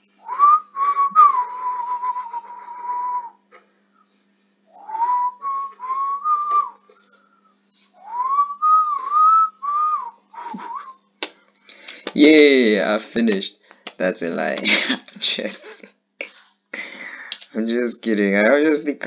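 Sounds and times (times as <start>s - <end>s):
person whistling: 0.2s - 3.4s, 4.8s - 11.0s.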